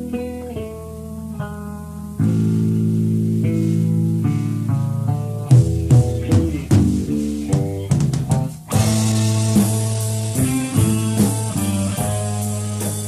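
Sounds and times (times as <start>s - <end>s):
plucked electric guitar notes: 0.0s - 13.0s
rock band playing: 0.0s - 13.0s
drum hits: 5.5s - 13.0s.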